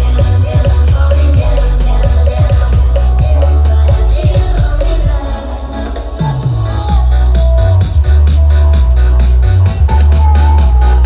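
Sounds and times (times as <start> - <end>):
fast kick-drum beat: 0.0 - 5.2
loud electronic dance music: 0.0 - 11.0.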